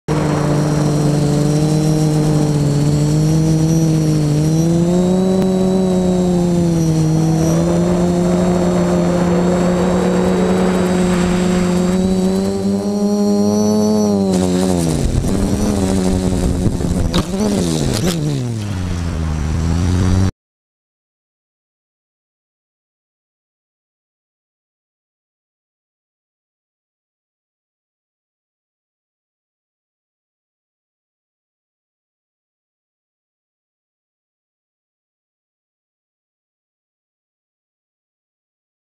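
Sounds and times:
quadcopter propellers buzzing: 0:00.1 - 0:20.3.

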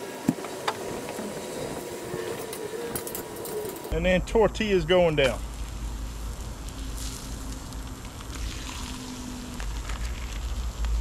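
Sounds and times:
low rumble: 0:03.9 - 0:11.0
tortillas sizzling on griddle: 0:05.4 - 0:11.0.

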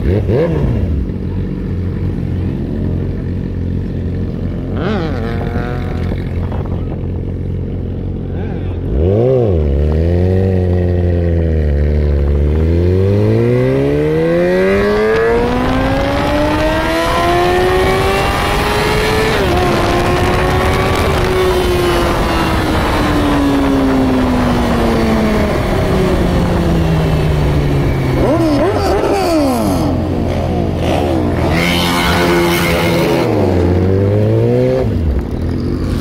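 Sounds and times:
motorcycle engine accelerating: 0:00.0 - 0:36.0
wind rushing past microphone: 0:14.4 - 0:29.4.

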